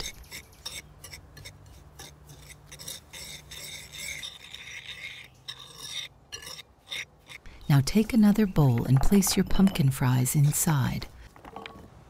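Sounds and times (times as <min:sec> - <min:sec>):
whisk scraping crumbs in a bowl: 0:00.0 - 0:07.0.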